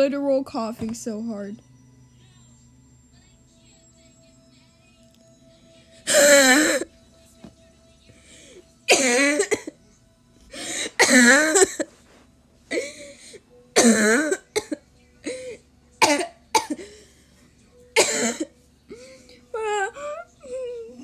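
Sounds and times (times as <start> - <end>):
person coughing: 6.0 - 6.9, 8.9 - 9.8, 10.6 - 11.9, 13.8 - 17.0, 18.0 - 19.0.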